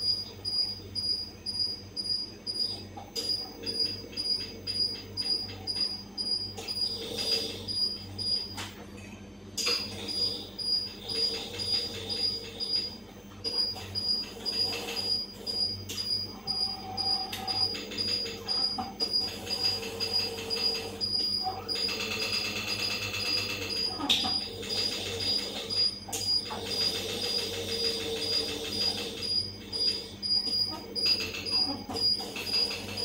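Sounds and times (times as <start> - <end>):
electric motors humming: 0.0 - 33.0
regular pulsing: 10.1 - 33.0.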